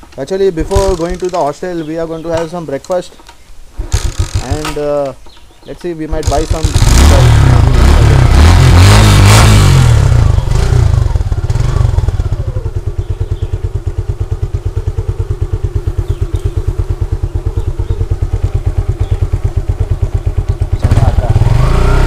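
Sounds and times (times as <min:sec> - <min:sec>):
motorcycle engine idling: 0:00.6 - 0:02.4, 0:09.9 - 0:21.6.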